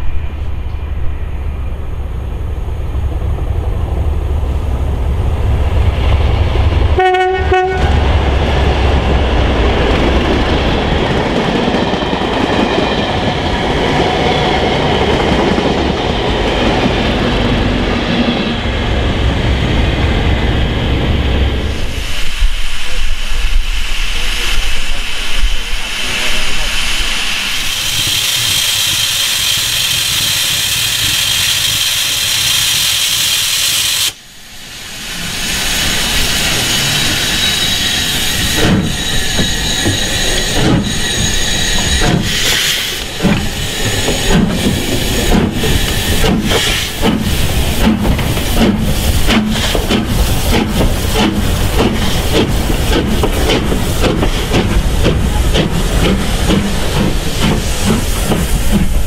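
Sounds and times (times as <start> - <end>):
steam locomotive exhaust chuffs: 2.5 - 59.0
steam locomotive hissing: 4.8 - 59.0.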